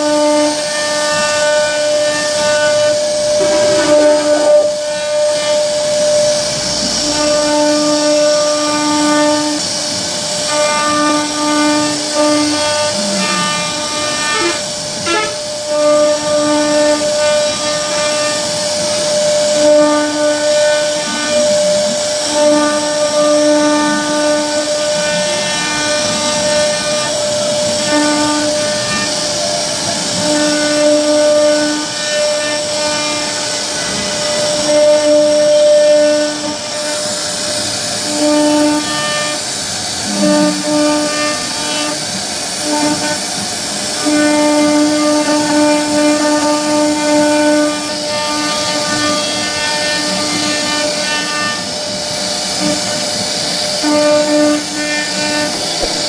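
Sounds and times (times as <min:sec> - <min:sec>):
bit cutting wood hiss: 0:00.0 - 0:56.0
router spindle high whine: 0:00.0 - 0:56.0
drive motors humming: 0:54.4 - 0:56.0.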